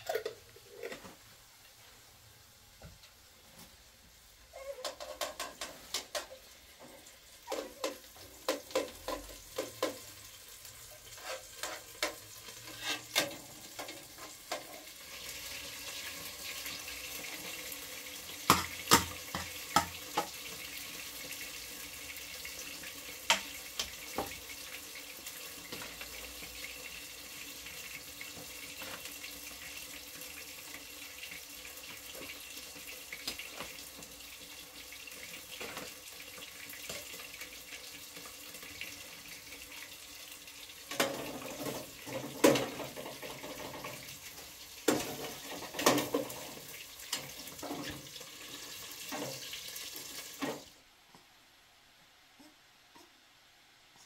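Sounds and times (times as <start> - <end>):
metal utensils clinking on pan: 7.5 - 10.1, 11.0 - 14.8.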